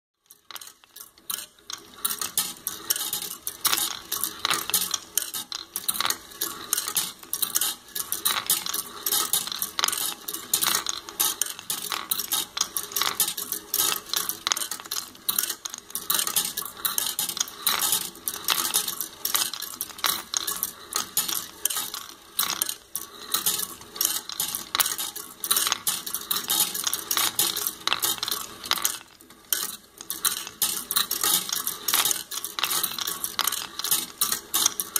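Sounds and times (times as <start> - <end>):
steel balls clattering on tracks: 0.2 - 34.9.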